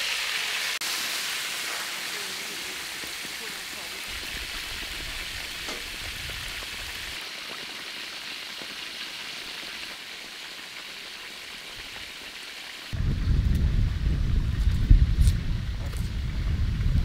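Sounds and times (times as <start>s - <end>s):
deep-frying sizzle: 0.0s - 17.0s
low rumble: 13.0s - 17.0s.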